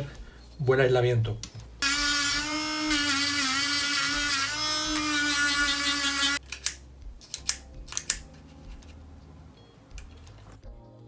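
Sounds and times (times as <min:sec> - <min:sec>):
rotary tool whining: 0:01.8 - 0:06.4.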